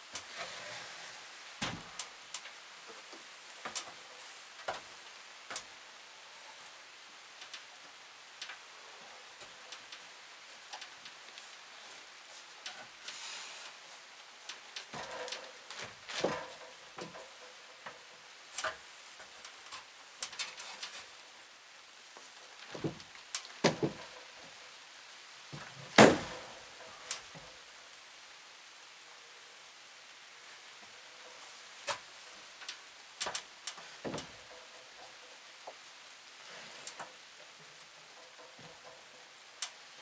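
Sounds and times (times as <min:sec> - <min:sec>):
wooden knocks and clunks: 0:01.6 - 0:02.0, 0:14.9 - 0:18.0, 0:22.6 - 0:24.2, 0:25.5 - 0:26.6, 0:34.0 - 0:35.9.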